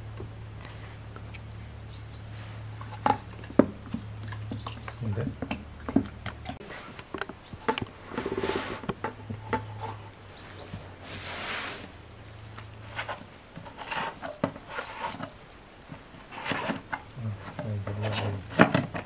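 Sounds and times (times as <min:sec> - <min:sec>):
short rubbing sounds: 0:11.0 - 0:11.9.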